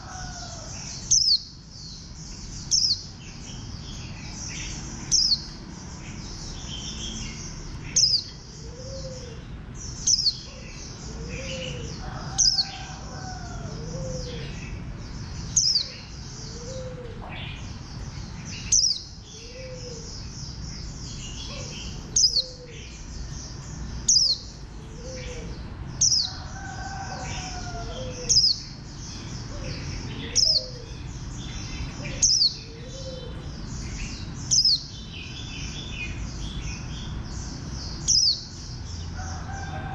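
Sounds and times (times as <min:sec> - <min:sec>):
high bird twittering: 0:02.4 - 0:09.3, 0:17.6 - 0:26.4.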